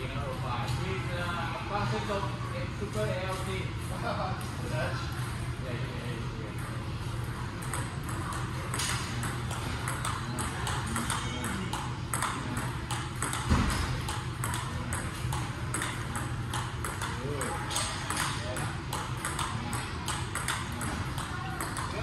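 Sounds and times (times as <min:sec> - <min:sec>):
table tennis ball clicking: 0:07.6 - 0:22.0.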